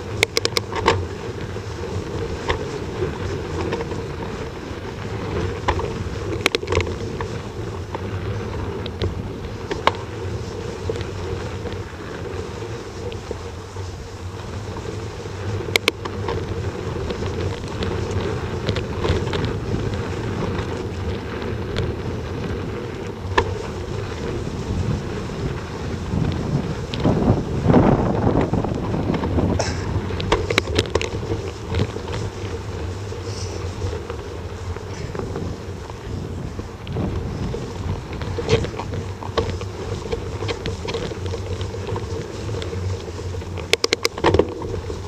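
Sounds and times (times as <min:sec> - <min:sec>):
low rumble of riding over ground: 0:00.0 - 0:45.0
wind rushing over microphone: 0:00.0 - 0:45.0
sharp clicks and knocks: 0:00.2 - 0:01.0, 0:43.6 - 0:44.7.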